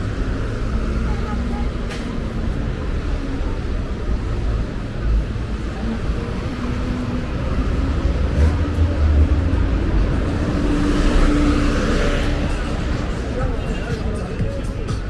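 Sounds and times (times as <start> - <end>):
vehicle engine hum rising: 0.0 - 14.6
low road rumble: 0.0 - 15.0
vehicle passing close by: 6.0 - 13.4.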